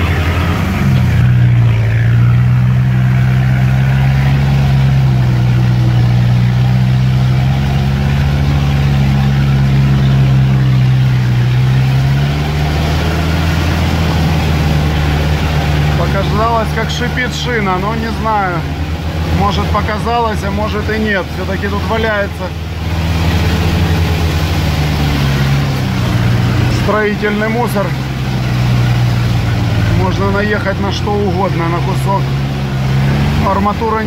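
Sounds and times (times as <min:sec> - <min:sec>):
vehicle engine running inside cab: 0:00.0 - 0:34.0.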